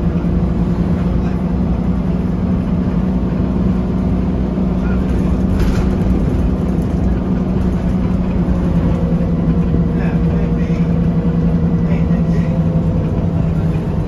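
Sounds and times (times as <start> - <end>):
bus diesel engine idling: 0.0 - 14.0.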